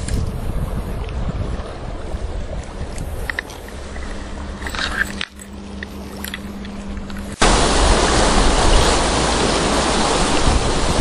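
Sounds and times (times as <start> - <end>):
wind on microphone: 0.0 - 4.4, 6.8 - 11.0
river water flowing over stones: 1.9 - 11.0.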